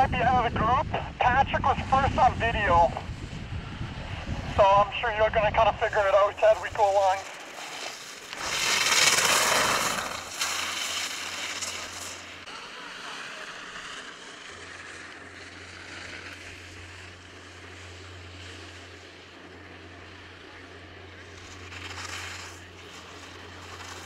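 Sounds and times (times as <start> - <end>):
vehicle passing: 7.2 - 20.4.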